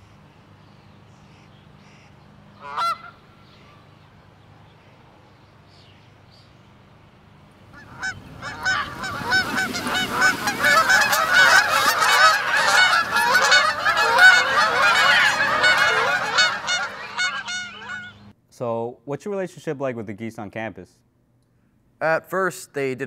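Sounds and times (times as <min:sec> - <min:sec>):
geese honking: 0:01.3 - 0:03.9, 0:07.7 - 0:18.3.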